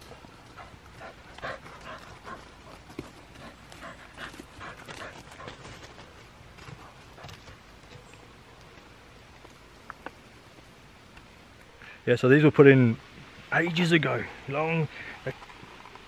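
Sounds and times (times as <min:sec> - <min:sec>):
dogs rustling and scuffing: 0:00.0 - 0:09.6.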